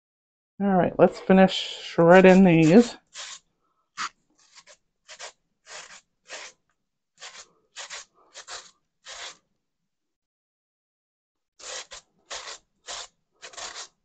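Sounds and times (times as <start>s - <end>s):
potato scraping on a grater: 2.2s - 3.4s, 4.0s - 6.6s, 7.2s - 9.4s, 11.6s - 14.0s.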